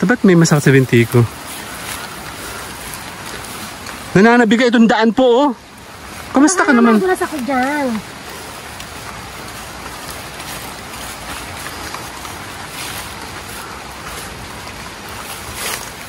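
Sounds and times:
river water rushing: 0:00.0 - 0:16.0
water swish: 0:05.2 - 0:16.0.

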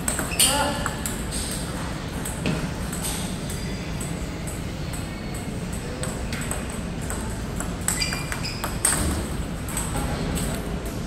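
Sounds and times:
ping pong ball clicking: 0:00.0 - 0:01.6, 0:04.0 - 0:09.1
low background hum: 0:00.0 - 0:11.0.

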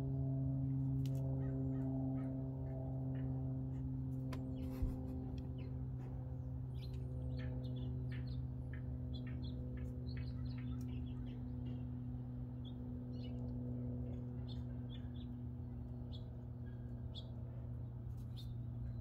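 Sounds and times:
low mechanical hum: 0:00.0 - 0:19.0
small birds chirping: 0:04.4 - 0:19.0.

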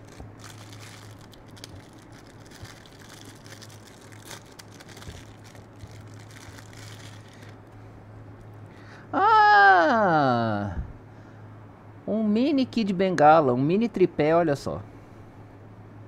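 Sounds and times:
plastic bag crinkling: 0:00.0 - 0:07.7
steady low hum: 0:00.0 - 0:16.0.

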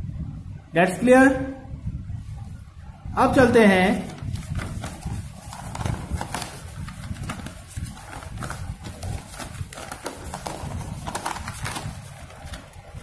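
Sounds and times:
paper sheets rustling: 0:03.9 - 0:13.0.

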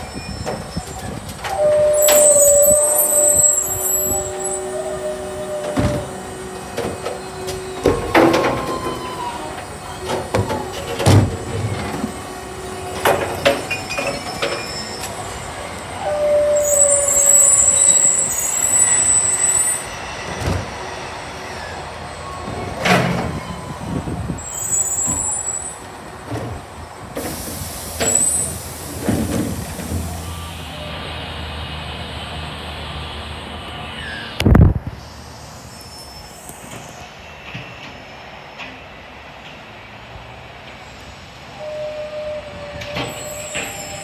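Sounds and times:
air brakes hissing: 0:00.0 - 0:25.9, 0:27.1 - 0:31.3
garbage truck hydraulic whine: 0:00.0 - 0:31.6
bins clunking and knocking: 0:10.0 - 0:12.1.

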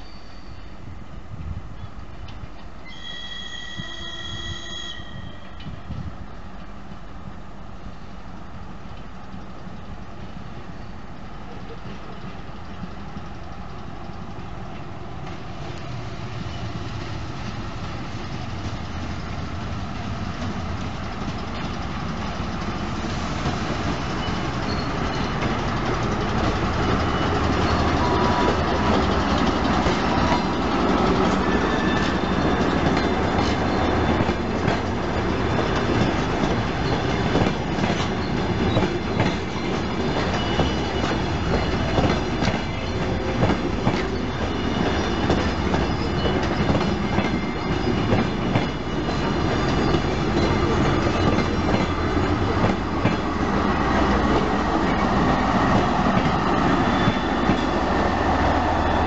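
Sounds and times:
diesel train engine: 0:01.1 - 0:59.0
train wheels clattering over rail joints: 0:20.4 - 0:57.8.

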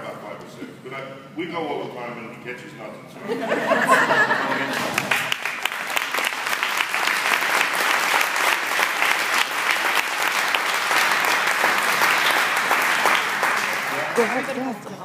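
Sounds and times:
audience applauding: 0:04.7 - 0:14.8.

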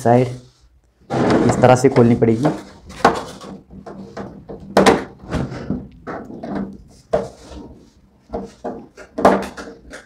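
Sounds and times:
plastic cabinet knocks and clunks: 0:01.1 - 0:02.3, 0:02.9 - 0:07.4, 0:08.3 - 0:10.0.

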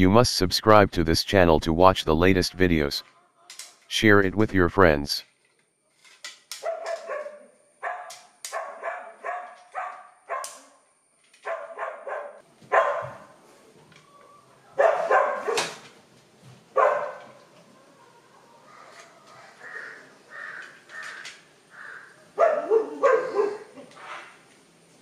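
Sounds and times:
dog barking: 0:06.6 - 0:10.6, 0:11.4 - 0:13.3, 0:14.8 - 0:15.8, 0:16.8 - 0:17.3, 0:22.4 - 0:23.7.

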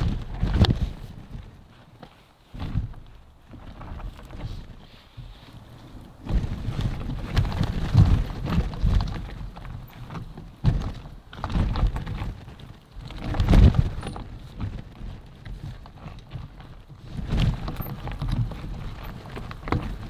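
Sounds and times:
wind buffeting microphone: 0:00.0 - 0:01.8, 0:02.5 - 0:20.0
mountain bike clattering over stones: 0:05.5 - 0:20.0.

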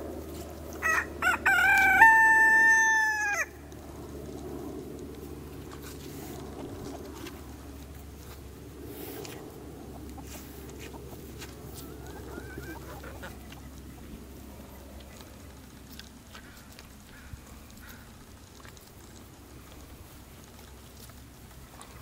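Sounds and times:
wavering chicken call: 0:00.8 - 0:03.5, 0:11.7 - 0:13.7
animal crunching watermelon rind: 0:03.6 - 0:22.0
chickens clucking: 0:05.5 - 0:22.0.

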